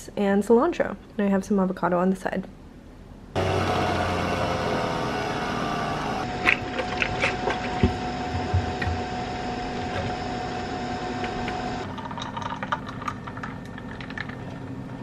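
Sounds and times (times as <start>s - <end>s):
espresso machine humming whir: 3.4s - 14.6s.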